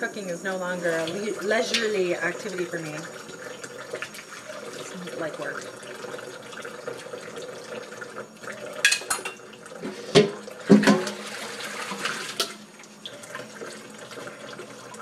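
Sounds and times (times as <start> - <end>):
dishes clinking: 8.8 - 11.2
tap running into sink: 8.8 - 12.6.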